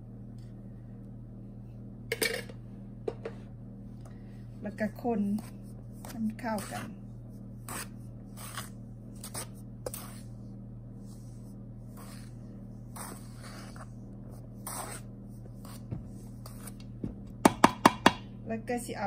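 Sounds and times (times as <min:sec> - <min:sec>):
steady low hum: 0:00.0 - 0:19.0
cup scraping flour in bowl: 0:07.6 - 0:10.4, 0:11.1 - 0:14.0, 0:14.6 - 0:16.8.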